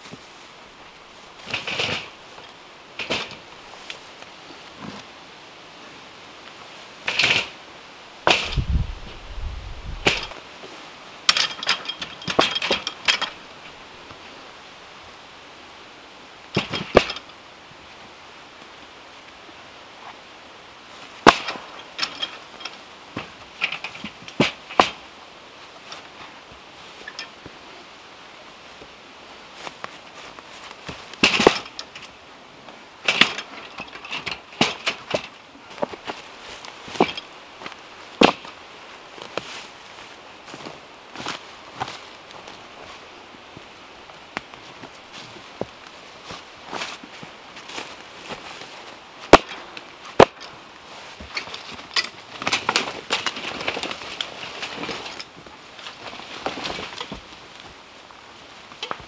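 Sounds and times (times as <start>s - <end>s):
logs knocking in metal cart: 1.4s - 3.4s, 8.3s - 8.7s, 10.0s - 10.4s, 11.3s - 13.4s, 16.6s - 17.3s, 30.9s - 32.1s, 33.0s - 36.2s, 36.9s - 37.3s
wooden logs knocking together: 1.4s - 4.0s, 7.0s - 7.6s, 8.2s - 9.2s, 10.0s - 10.4s, 11.3s - 13.5s, 16.5s - 17.3s, 21.2s - 25.0s, 30.6s - 32.2s, 33.0s - 38.6s, 49.3s - 50.6s, 51.2s - 57.8s
small clicks and rattles: 11.3s - 13.5s, 21.3s - 24.9s.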